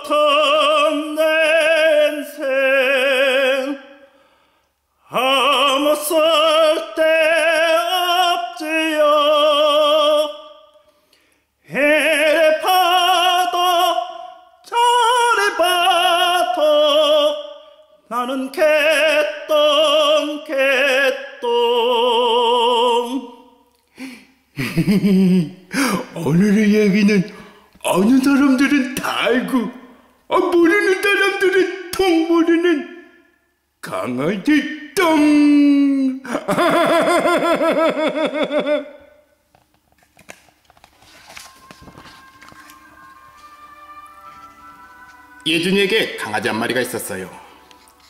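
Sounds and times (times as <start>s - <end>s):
operatic solo singing: 0.0s - 4.0s, 11.6s - 23.5s
person singing with vibrato: 0.0s - 24.2s, 24.8s - 39.4s, 41.2s - 48.0s
person speaking: 25.4s - 33.0s, 45.2s - 48.0s.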